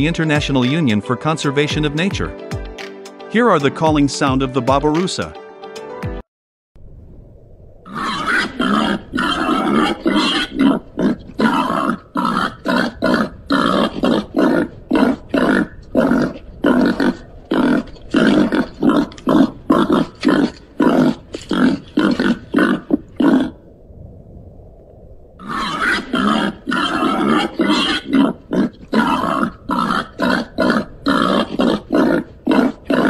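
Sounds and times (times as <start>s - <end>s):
pig grunting: 7.9s - 23.6s, 25.4s - 33.0s.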